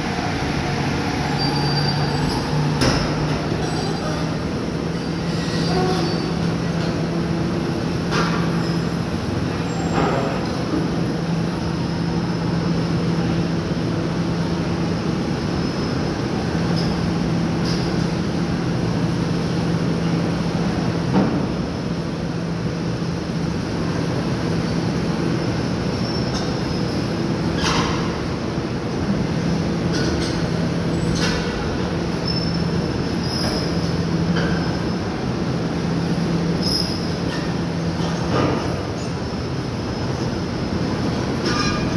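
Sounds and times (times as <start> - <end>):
heavy engine drone: 0.0 - 21.4.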